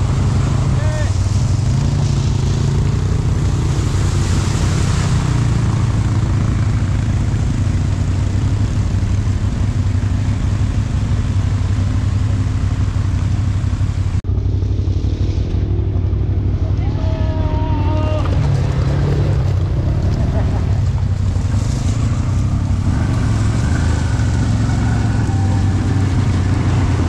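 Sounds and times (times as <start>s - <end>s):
atv engines running: 0.0s - 27.0s
wheels splashing through water: 0.0s - 27.0s.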